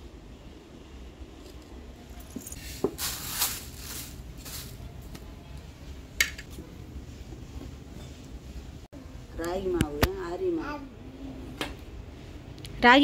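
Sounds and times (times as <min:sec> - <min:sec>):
rustling swishes: 0:02.5 - 0:05.0.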